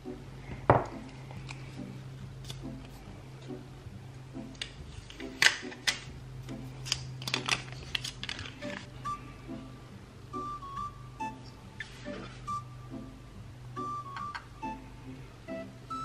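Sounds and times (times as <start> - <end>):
paper flaps clicking: 6.8 - 8.9
paper packaging crinkling: 6.8 - 8.9.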